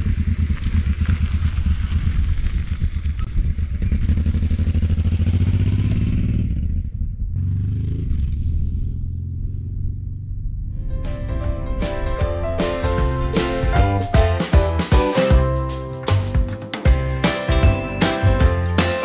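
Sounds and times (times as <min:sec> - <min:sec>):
motorcycle engine rumbling past: 0:00.0 - 0:12.4.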